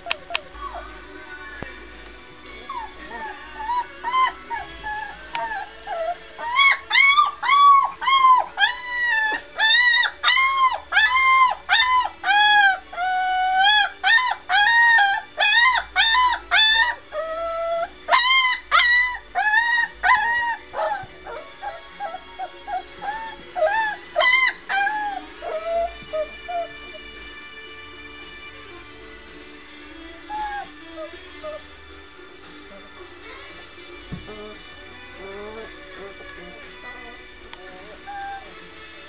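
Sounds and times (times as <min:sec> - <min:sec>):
puppy whimpering: 0:00.0 - 0:01.0, 0:02.5 - 0:27.1, 0:30.2 - 0:31.7, 0:34.2 - 0:38.7
puppy howling: 0:02.6 - 0:27.1, 0:30.2 - 0:31.6, 0:34.2 - 0:38.7.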